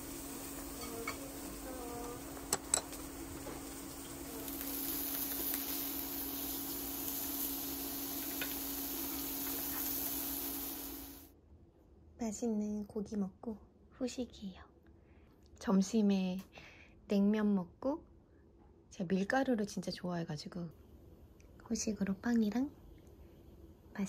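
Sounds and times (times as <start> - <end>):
beef sizzling in frying pan: 0.0 - 11.3.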